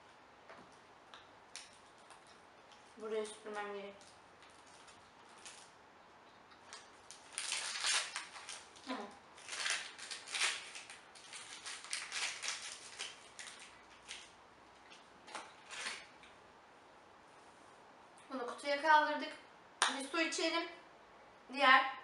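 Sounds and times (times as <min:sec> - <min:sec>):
plastic wrapper crinkling: 0:01.5 - 0:05.8, 0:06.6 - 0:16.3.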